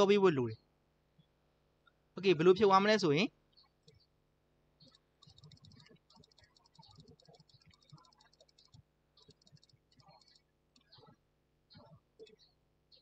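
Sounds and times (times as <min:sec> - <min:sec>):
fast clicking of input device: 0:04.8 - 0:11.0.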